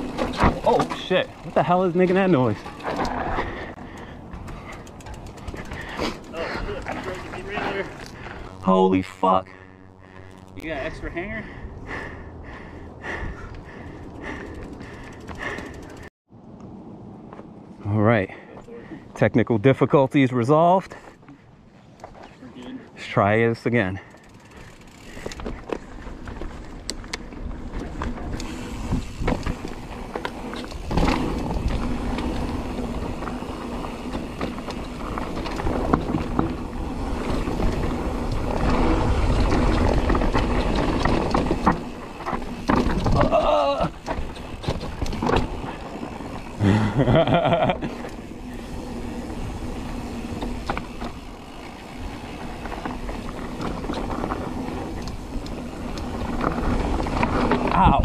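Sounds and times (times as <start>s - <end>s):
bike rattling and knocking: 0.0s - 8.2s, 13.8s - 16.1s, 24.1s - 58.0s
tyres grinding over dirt: 27.5s - 58.0s.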